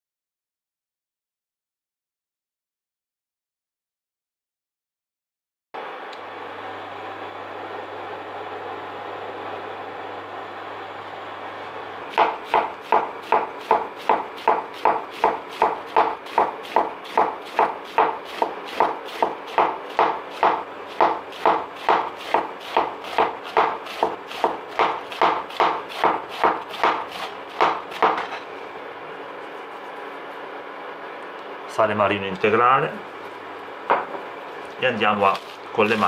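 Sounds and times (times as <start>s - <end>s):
knife cutting cabbage on board: 12.1s - 28.4s.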